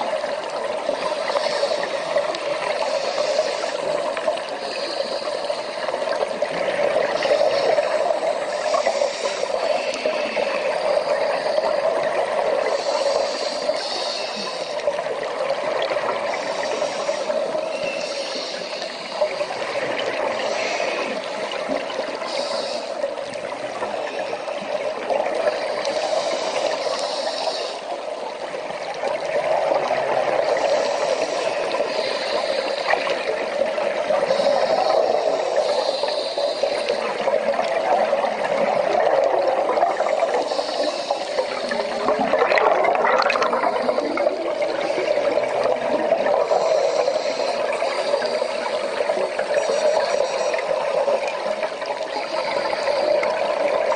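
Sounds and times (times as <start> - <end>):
soft hiss: 0.0 - 42.4
underwater rush of water: 0.0 - 53.9
bubbling: 36.9 - 53.9.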